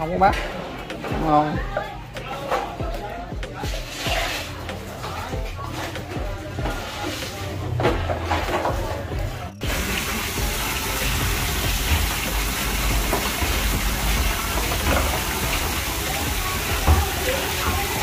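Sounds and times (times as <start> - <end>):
tap water running into sink: 9.6 - 18.0.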